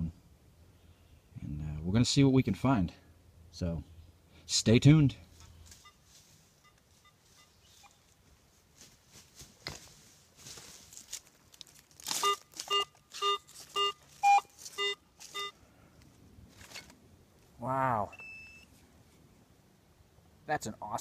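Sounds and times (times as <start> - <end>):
dry leaves rustling: 5.6 - 15.6
metal detector beeping: 5.8 - 6.0, 6.6 - 7.6, 12.1 - 15.6, 18.1 - 18.7.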